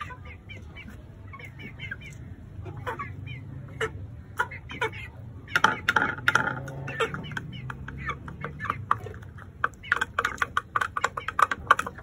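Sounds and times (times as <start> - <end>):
chicken calls: 0.0 - 12.0
beaks tapping ceramic plate: 4.3 - 12.0.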